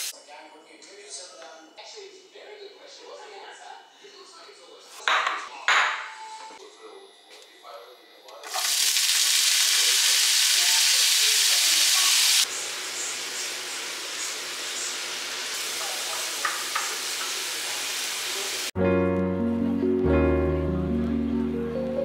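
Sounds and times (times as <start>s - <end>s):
bacon sizzling in a frying pan: 8.4s - 18.8s.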